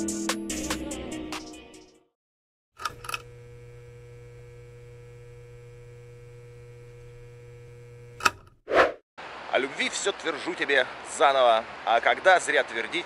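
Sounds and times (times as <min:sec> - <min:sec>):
low electrical hum: 0:02.9 - 0:08.2.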